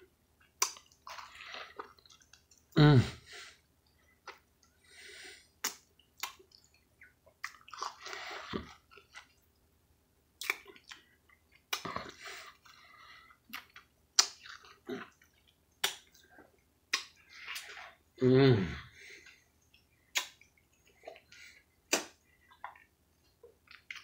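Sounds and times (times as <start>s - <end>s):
sucking and chewing fruit: 0.4s - 9.6s, 10.4s - 24.0s
sharp lip smacks: 0.6s - 0.9s, 5.6s - 6.4s, 10.4s - 10.7s, 13.5s - 14.5s, 15.8s - 16.2s, 16.9s - 17.8s, 20.1s - 20.5s, 21.9s - 22.2s.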